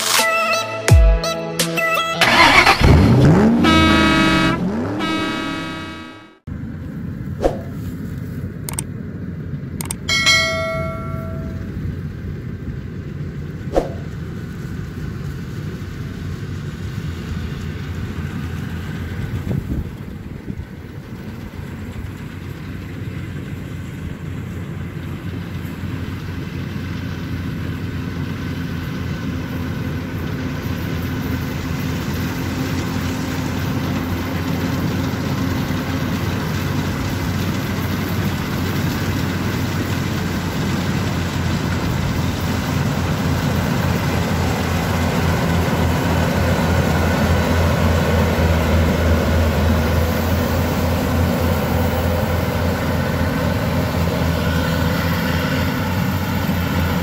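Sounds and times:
combine harvester running: 2.2 - 57.0
sharp click: 7.4 - 7.8, 8.7 - 8.9, 9.8 - 10.1, 13.7 - 14.1.

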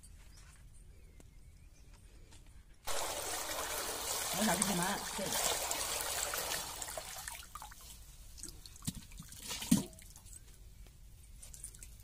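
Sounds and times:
liquid pouring into a pan: 2.9 - 7.8.

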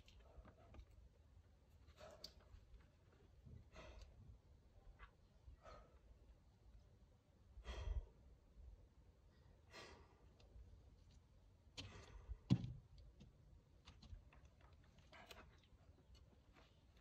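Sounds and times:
person breathing out hard: 7.6 - 8.2.

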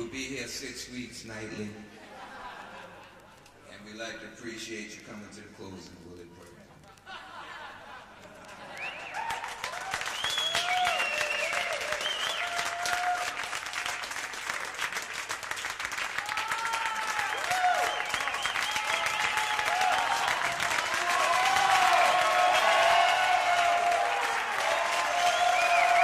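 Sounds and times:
audience applauding: 8.2 - 26.0
whoops and whistles: 8.8 - 13.0, 17.3 - 20.5, 25.1 - 26.0.

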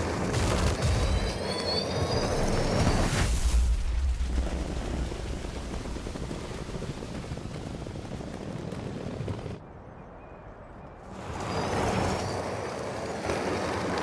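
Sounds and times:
spiked tyres crackling on snow: 2.9 - 9.6, 11.1 - 14.0.

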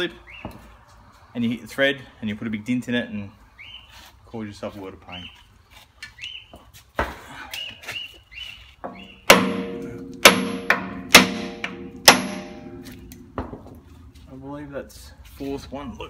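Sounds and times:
hammer striking steel: 8.9 - 13.9.

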